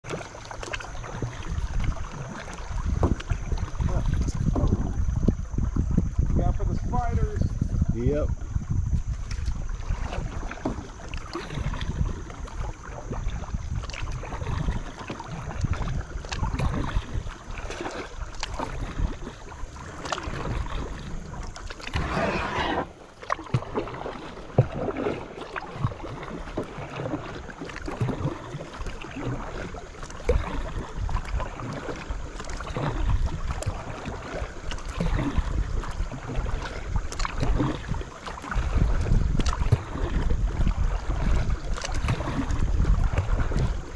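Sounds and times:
water splashing and dripping: 0.0 - 7.4, 8.9 - 43.9
small knocks on boat: 0.0 - 7.8, 8.4 - 21.0, 23.2 - 43.8
wind rumble on microphone: 0.0 - 25.1, 27.8 - 43.9
paddle strokes in water: 0.0 - 43.9.

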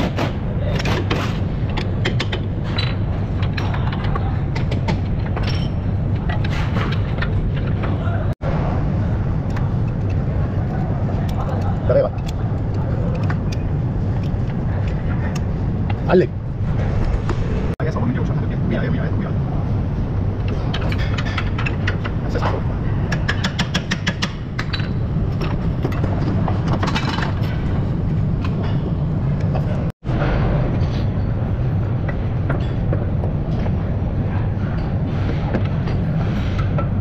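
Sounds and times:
metal clunks and scrapes: 0.0 - 8.0
low workshop rumble: 0.0 - 37.0.

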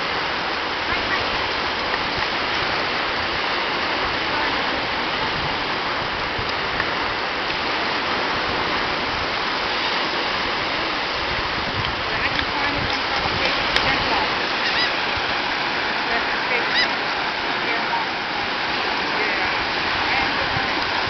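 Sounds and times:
ocean surf rushing: 0.0 - 21.0.

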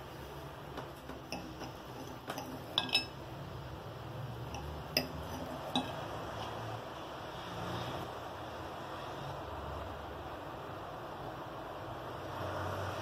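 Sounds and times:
cutlery clinking on ceramic plate: 1.3 - 3.2, 4.6 - 6.0.

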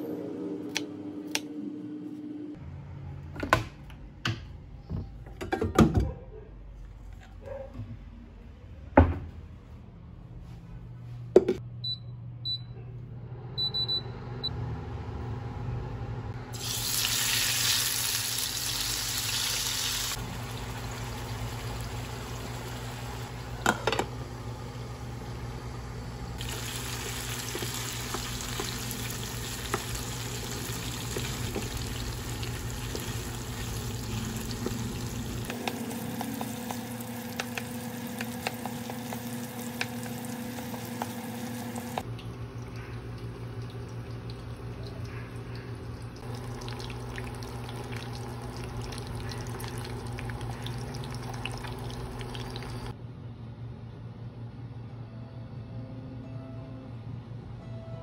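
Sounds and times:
low steady cooktop hum: 0.0 - 57.9
meat and onions sizzling: 16.6 - 23.4, 26.4 - 42.0.

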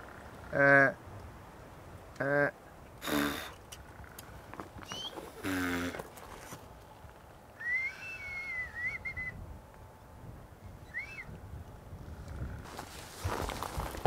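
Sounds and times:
whistled call: 4.8 - 5.3, 7.6 - 9.4, 10.8 - 11.3
short rising-falling whistle: 7.6 - 9.4.

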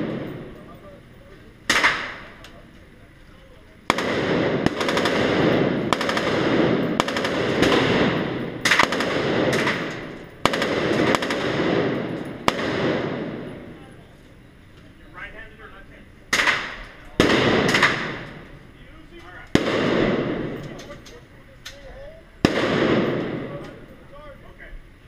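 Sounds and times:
gunshots echoing indoors: 0.0 - 0.6, 1.7 - 2.4, 3.9 - 13.8, 16.3 - 18.5, 19.5 - 20.8, 22.4 - 23.7.

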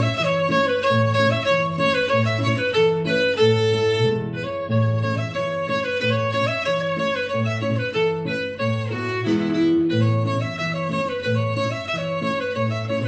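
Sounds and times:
bowed fiddle folk melody: 0.0 - 13.0.

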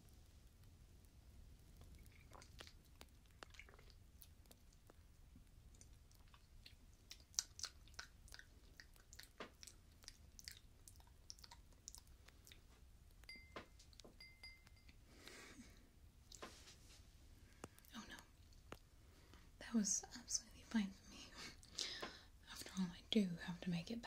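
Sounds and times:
sipping and swallowing: 1.8 - 4.4
short high pings: 13.3 - 14.9.

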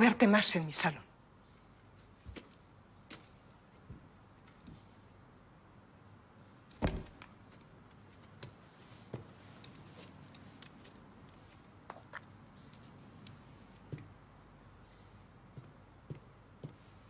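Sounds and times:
footsteps on floor: 15.5 - 17.0.

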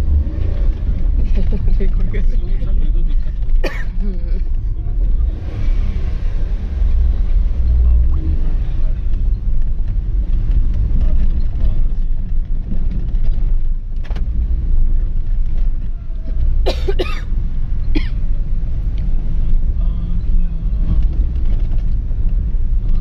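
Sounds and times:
car engine and road rumble: 0.0 - 23.0.

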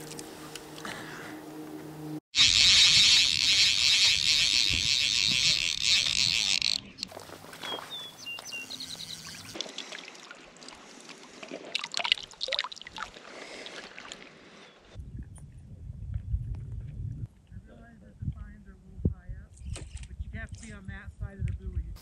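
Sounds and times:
fly reel drag buzzing: 2.3 - 7.2
water splashing and dripping: 9.1 - 14.6.

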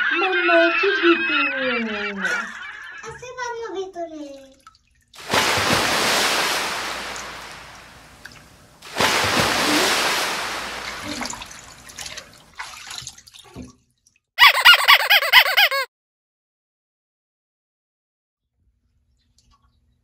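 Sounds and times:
high warbling giggle: 0.0 - 3.0, 14.4 - 15.9
bathwater splashing: 4.7 - 13.8.

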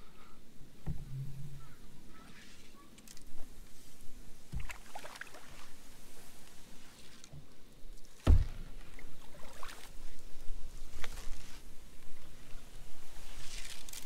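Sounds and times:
paddle strokes in water: 3.8 - 7.4, 8.1 - 14.0
paddle thumps against hull: 4.5 - 4.8, 8.2 - 8.8.

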